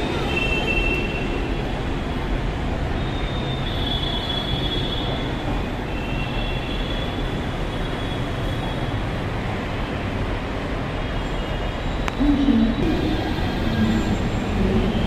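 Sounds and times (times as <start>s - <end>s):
train rumbling on track: 0.0s - 6.0s, 11.9s - 15.0s.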